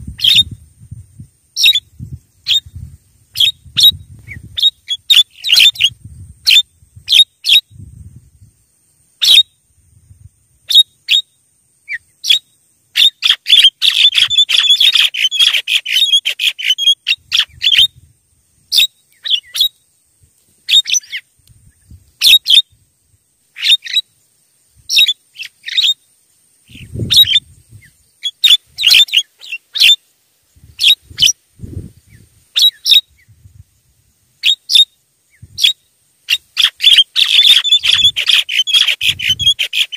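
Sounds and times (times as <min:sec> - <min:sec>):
bird chattering rapidly: 0:13.0 - 0:17.9, 0:26.7 - 0:27.4, 0:35.6 - 0:39.9.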